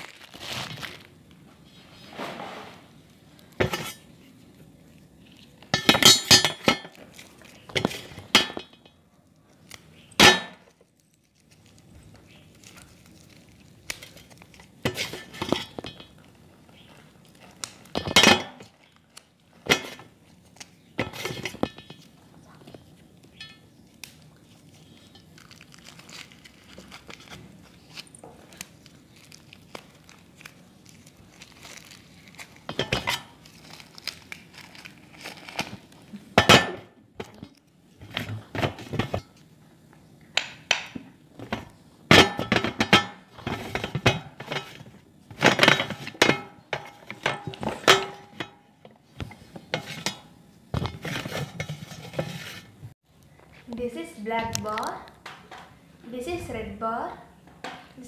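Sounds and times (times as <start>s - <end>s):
plastic wrapper crinkling: 0.0s - 1.5s, 6.9s - 8.2s, 9.1s - 14.9s, 16.0s - 18.0s, 18.7s - 20.9s, 22.0s - 36.3s.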